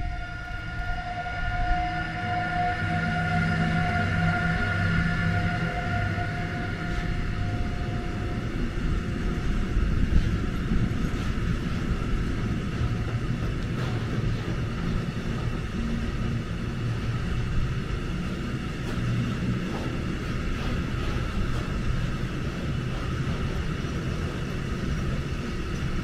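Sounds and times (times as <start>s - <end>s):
high tone: 0.0s - 9.6s
train wheels rumbling on track: 0.0s - 26.0s.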